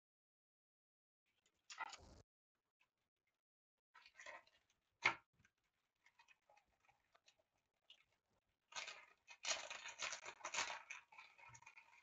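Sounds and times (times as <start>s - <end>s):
scratchy rustling and scraping: 6.0s - 12.0s.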